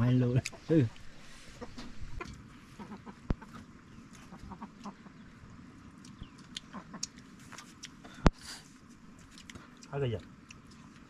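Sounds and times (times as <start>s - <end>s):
faint clucking animal calls: 0.0s - 8.4s.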